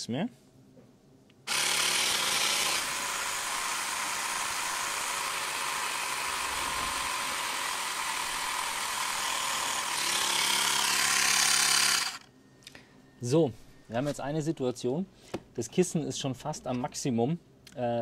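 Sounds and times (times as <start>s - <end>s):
portable air compressor running: 1.5s - 12.3s.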